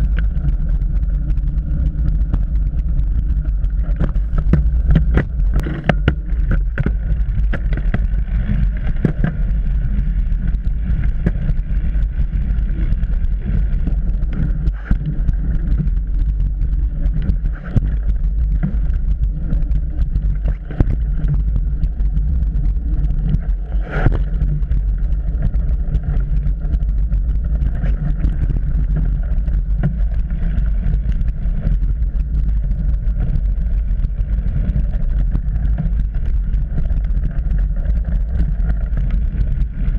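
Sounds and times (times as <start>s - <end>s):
bike rattling over bumps: 0.0s - 34.4s
tyres rumbling on dirt trail: 0.0s - 39.9s
wind: 3.8s - 8.3s.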